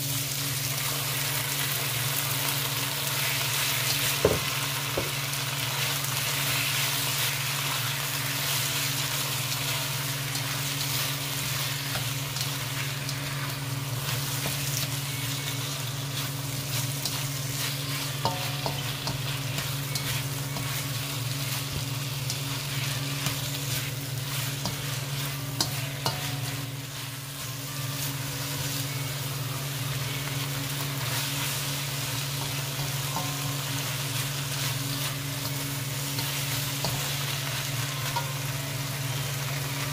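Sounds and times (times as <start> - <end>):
shrimp sizzling in a wok: 0.0 - 39.9
spatula scraping and tapping pan: 16.8 - 26.7.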